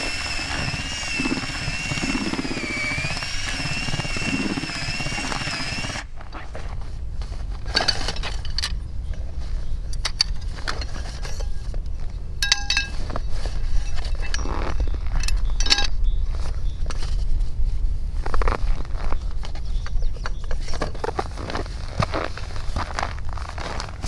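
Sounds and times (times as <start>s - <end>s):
steady low rumble: 0.3s - 14.0s
metallic clicks and clinks: 12.4s - 13.0s, 13.9s - 16.0s.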